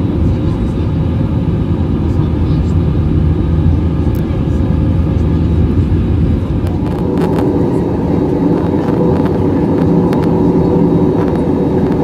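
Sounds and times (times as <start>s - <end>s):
airplane cabin jet engine noise: 0.0s - 12.0s.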